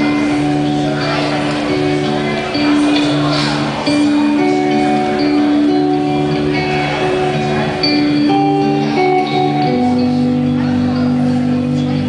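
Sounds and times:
electric guitar ringing notes: 0.0s - 12.0s.

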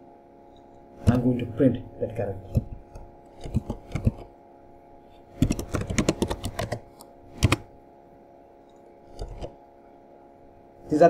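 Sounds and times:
computer keyboard typing: 2.4s - 4.3s, 5.3s - 7.7s, 9.1s - 9.6s.

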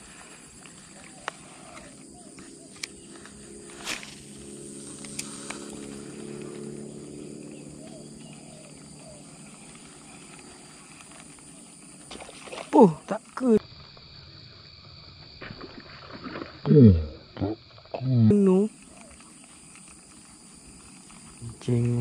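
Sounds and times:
low drone: 1.2s - 11.9s
fishing rod cast swish: 3.8s - 4.2s.

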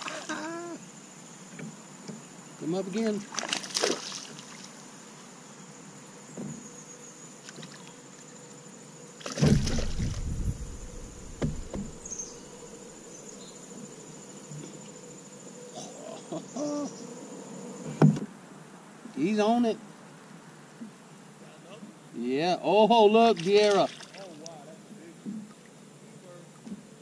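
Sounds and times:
high insect drone: 0.0s - 27.0s
fish splashing in water: 3.3s - 4.6s, 9.2s - 12.0s, 23.4s - 24.5s.

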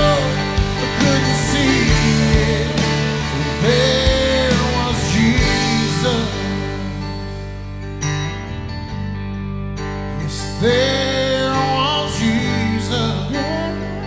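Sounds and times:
worship band playing slow song: 0.0s - 9.0s, 9.8s - 14.0s
acoustic guitar: 0.0s - 14.0s.

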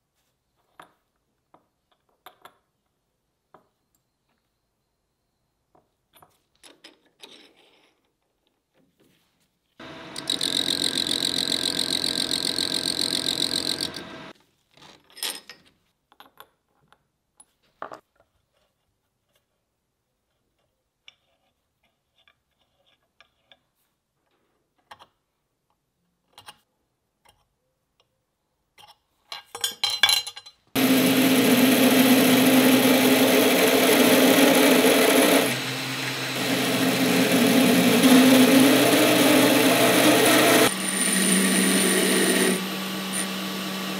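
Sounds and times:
belt grinder grinding metal: 9.8s - 14.3s, 30.8s - 43.9s
metal lathe cutting: 9.8s - 14.3s, 30.8s - 43.9s.

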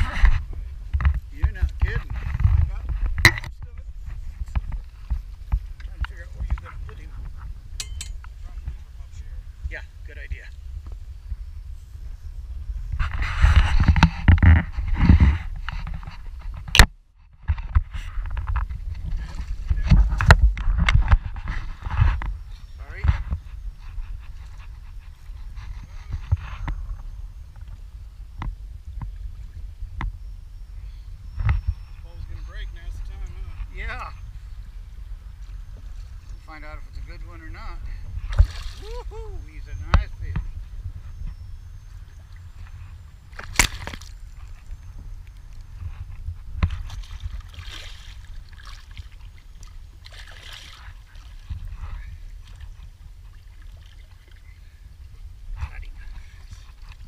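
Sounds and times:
water lapping against boat hull: 0.0s - 9.7s, 41.6s - 57.0s
wind rumble on microphone: 0.0s - 57.0s
water splashing against boat: 46.5s - 57.0s
fish thrashing splashes: 46.8s - 51.5s.

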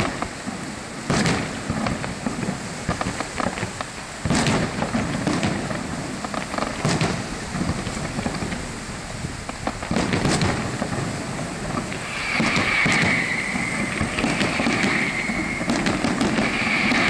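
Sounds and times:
fireworks bangs and crackles: 0.0s - 17.0s
steady high hiss: 0.0s - 17.0s
low rumble: 6.6s - 15.6s.

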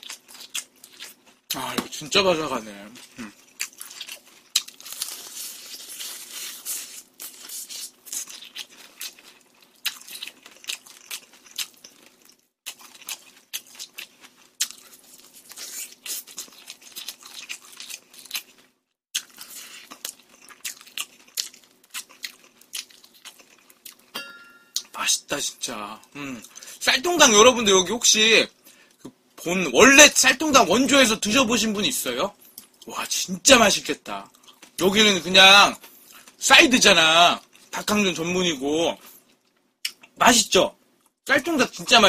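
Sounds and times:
chewing crispy fried chicken: 0.0s - 24.1s, 25.6s - 26.8s, 34.2s - 34.9s.

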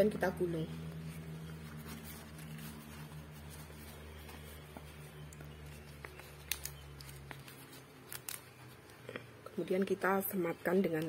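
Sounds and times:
steady low hum: 0.0s - 11.0s
leaf rustling: 0.2s - 9.0s.

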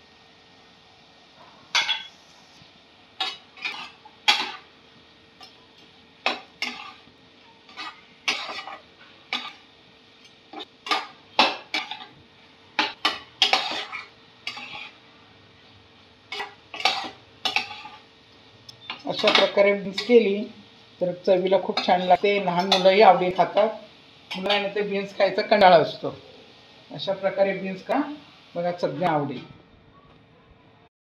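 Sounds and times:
spatula scraping a pan: 3.2s - 4.7s, 6.2s - 7.1s, 7.7s - 12.2s, 12.8s - 15.0s, 16.3s - 18.1s.

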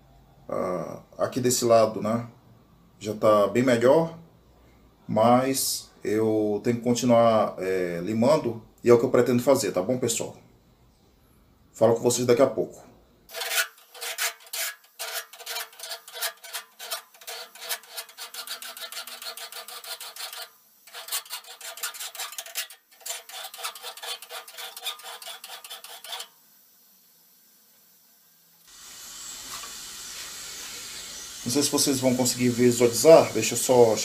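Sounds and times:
steady hiss: 5.1s - 34.0s
file rasping on steel blade: 13.3s - 26.4s.

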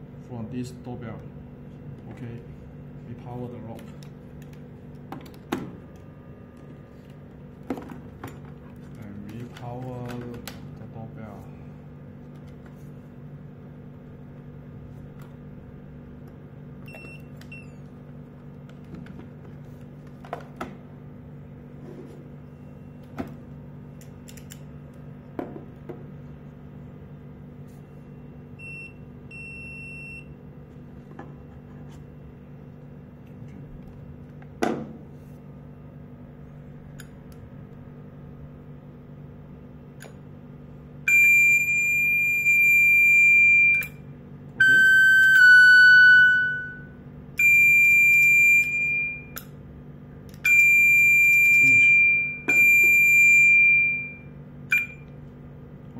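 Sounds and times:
low steady hum: 0.0s - 55.9s
intercom beeps: 44.6s - 49.3s, 50.5s - 55.0s.

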